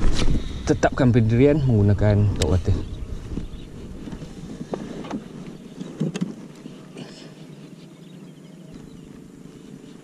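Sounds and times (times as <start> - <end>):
wind buffeting microphone: 0.0 - 6.8.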